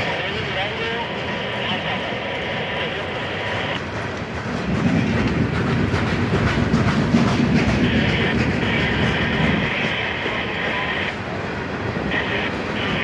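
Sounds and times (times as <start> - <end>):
train wheels rumbling on rail: 0.0 - 13.0
wheels clacking over rail joints: 3.8 - 13.0.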